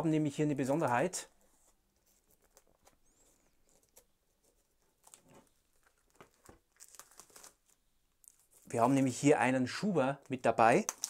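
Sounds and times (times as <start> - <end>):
plastic wrap crinkling and tearing: 4.8 - 9.0, 10.7 - 11.0.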